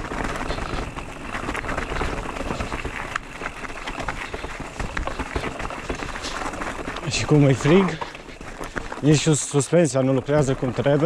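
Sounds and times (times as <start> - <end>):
bike knocks and rattles: 0.0 - 11.0
bike tyre noise on rough trail: 0.0 - 11.0.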